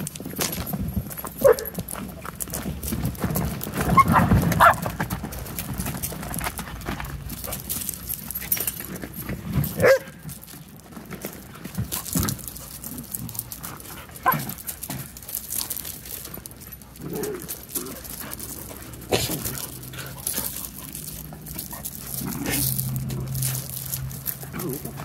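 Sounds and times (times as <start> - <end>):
paws scrabbling on gravel and leaves: 0.0 - 25.0
puppy vocalizations: 3.8 - 5.0, 16.7 - 25.0.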